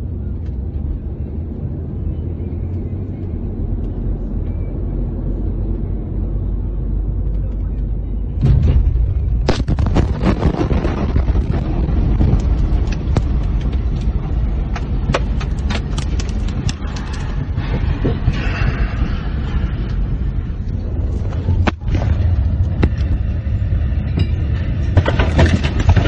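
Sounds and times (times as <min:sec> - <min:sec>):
explosion blast rumble: 0:08.3 - 0:26.0
sharp cracks and knocks: 0:12.2 - 0:17.4.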